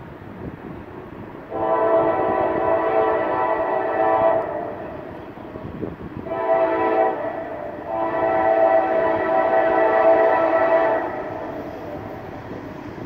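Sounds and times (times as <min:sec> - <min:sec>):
locomotive air horn blasts: 0:01.5 - 0:05.2, 0:06.2 - 0:12.0.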